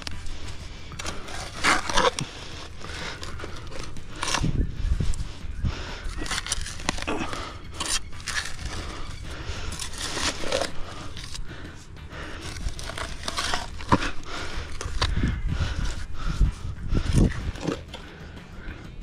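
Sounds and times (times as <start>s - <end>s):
spade scraping into soil: 0.0s - 4.6s, 6.0s - 11.5s, 12.2s - 15.2s.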